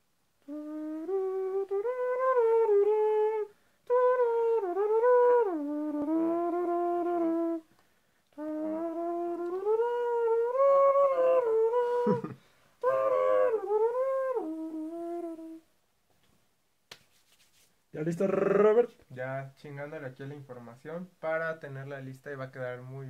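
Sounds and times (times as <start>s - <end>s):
person humming a slow melody: 0.4s - 7.7s, 8.3s - 15.7s.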